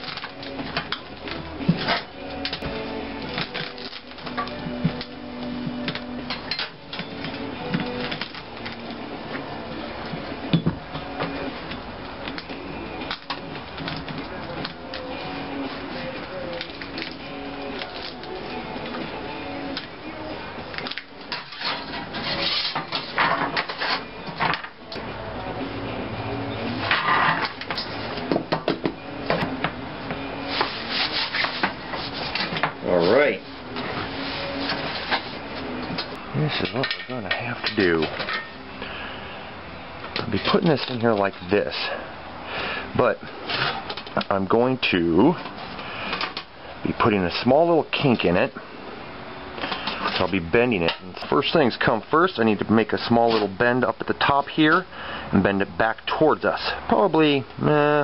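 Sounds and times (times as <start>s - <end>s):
sheet metal scraping and creaking: 21.3s - 24.8s, 26.7s - 28.2s.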